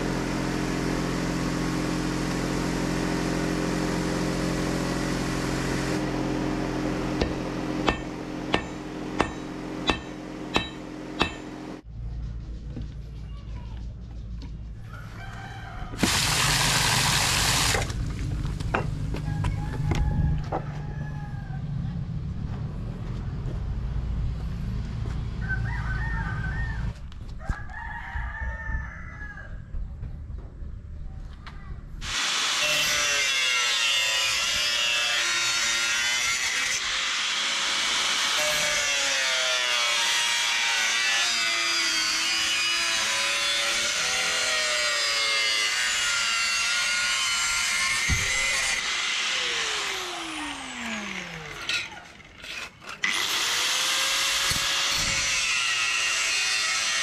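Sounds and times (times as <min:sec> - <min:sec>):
chickens crowing and clucking: 0:14.8 - 0:16.0, 0:19.1 - 0:22.0, 0:25.3 - 0:29.8.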